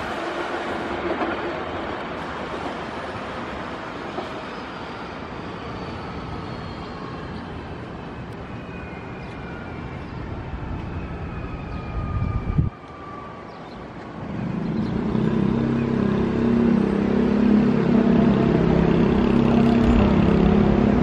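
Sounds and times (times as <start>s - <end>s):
train wheels rumbling on rails: 0.0s - 6.4s, 14.0s - 21.0s.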